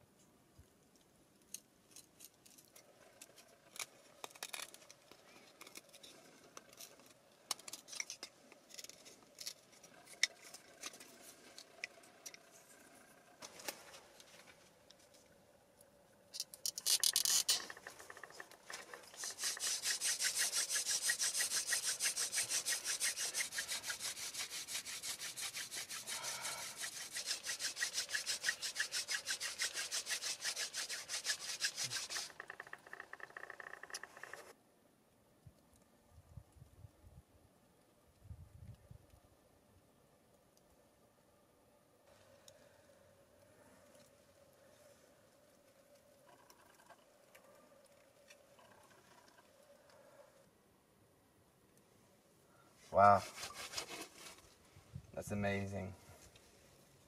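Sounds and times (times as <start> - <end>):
wooden spindle rubbing fireboard: 16.6 - 34.6, 46.2 - 49.6, 52.9 - 54.6
knife whittling wood: 16.7 - 34.5, 52.9 - 54.5.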